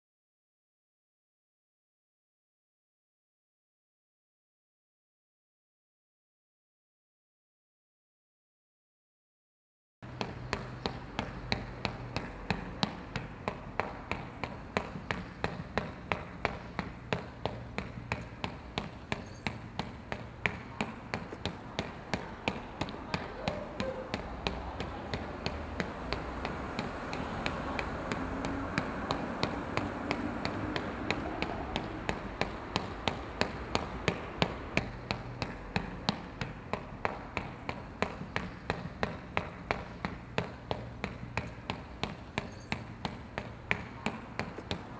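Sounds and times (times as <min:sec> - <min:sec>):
sharp taps: 0:10.1 - 0:44.9.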